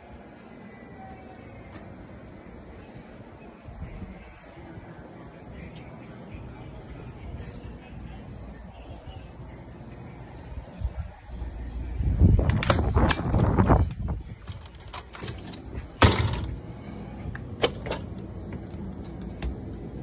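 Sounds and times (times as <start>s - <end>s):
door banging: 16.0s - 16.6s.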